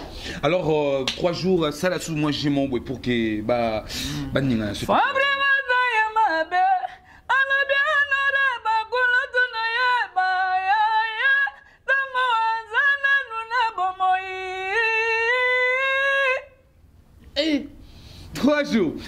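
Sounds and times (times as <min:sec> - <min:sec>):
man singing unaccompanied: 0:02.3 - 0:16.6.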